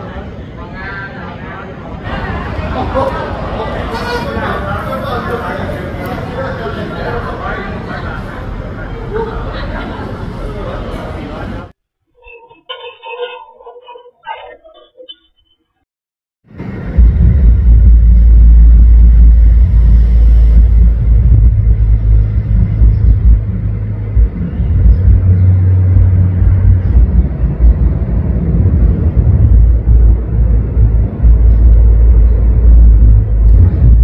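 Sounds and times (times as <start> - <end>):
bass guitar rumble: 16.5 - 34.0
rapid drumming: 17.0 - 34.0.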